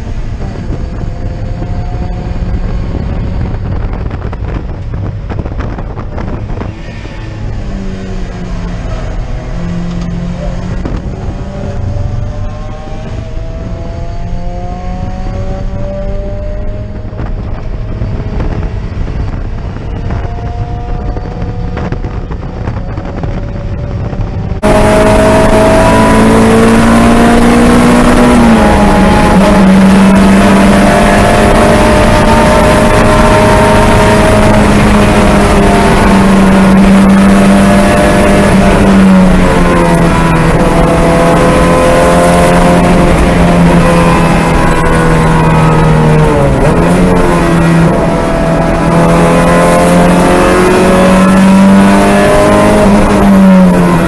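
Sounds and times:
car engine at high revs: 0:00.0 - 0:54.0.

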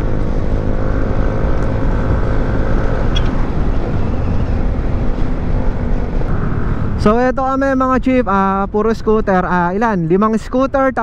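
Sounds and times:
faint steady whine: 0:00.8 - 0:08.6.

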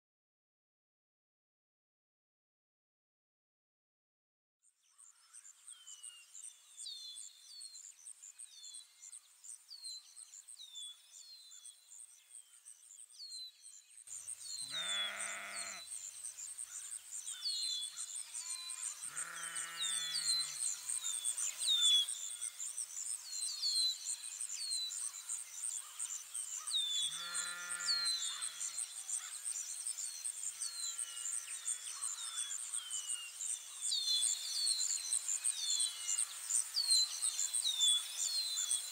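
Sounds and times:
sheep bleating: 0:14.6 - 0:15.8, 0:19.1 - 0:20.4, 0:27.1 - 0:28.1.

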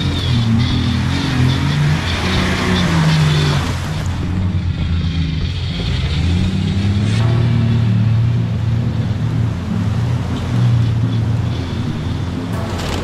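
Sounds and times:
suv engine running under load: 0:11.3 - 0:13.0
water sloshing and splashing: 0:12.4 - 0:13.0.

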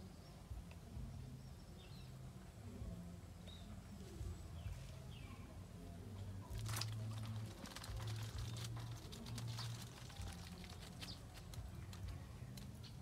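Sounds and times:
small clicks and pattering: 0:06.5 - 0:13.0.

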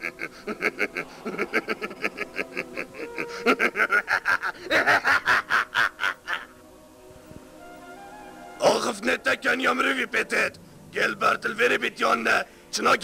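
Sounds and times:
man laughing: 0:00.0 - 0:06.6.

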